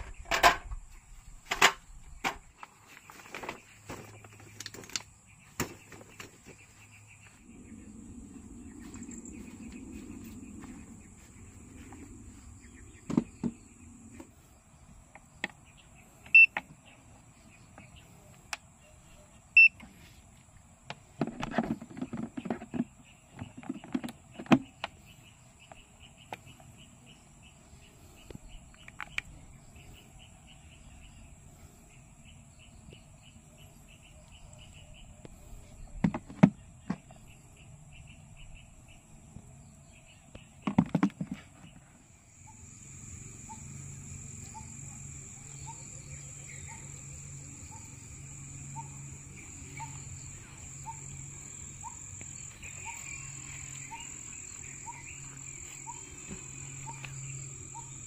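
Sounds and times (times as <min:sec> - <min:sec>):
insects chirring: 0:00.0 - 0:58.0
sharp knocks and clicks: 0:20.9 - 0:25.0, 0:40.6 - 0:41.5.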